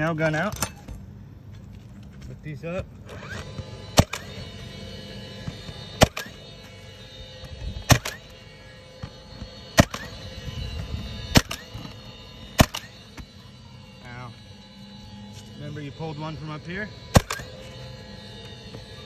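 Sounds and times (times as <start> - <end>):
nail gun firing: 3.1 - 4.3, 6.0 - 6.4, 7.9 - 8.3, 9.8 - 10.1, 11.3 - 11.9, 12.6 - 12.9, 17.1 - 17.5.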